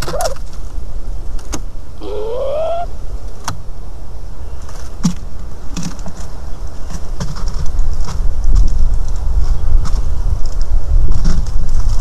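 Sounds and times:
bird rising call: 0.0 - 0.4, 2.0 - 2.9.

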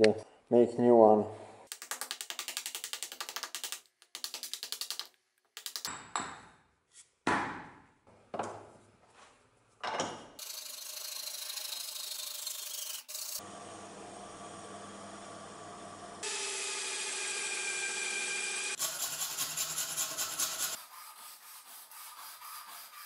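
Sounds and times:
hand saw rasping through wood: 18.7 - 23.0.

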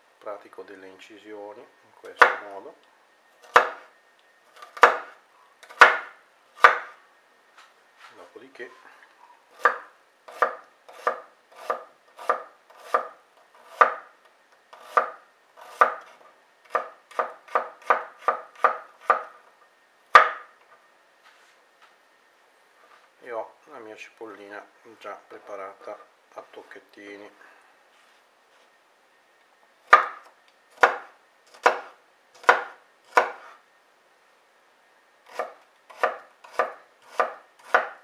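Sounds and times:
knife chopping on wooden board: 2.2 - 2.4, 3.4 - 3.8, 4.6 - 6.9, 9.6 - 14.0, 14.8 - 19.3, 20.1 - 20.5, 29.9 - 33.6, 35.3 - 38.0.

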